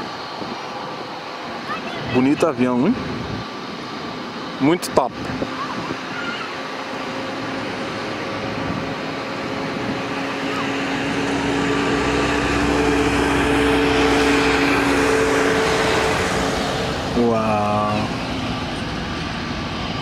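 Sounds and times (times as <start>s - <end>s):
jet engines at high thrust: 0.0s - 20.0s
steady engine tones: 0.0s - 20.0s
deep rumble: 8.5s - 20.0s.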